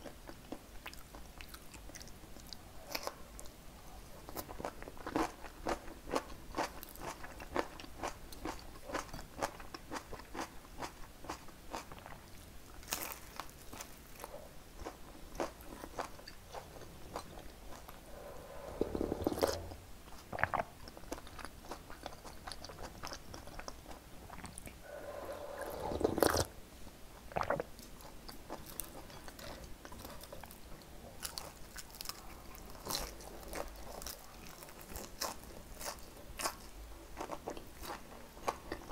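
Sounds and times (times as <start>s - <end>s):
wet crunching of chewing: 4.2s - 26.5s, 27.3s - 38.9s
slurping soup: 17.7s - 20.7s, 24.6s - 26.5s.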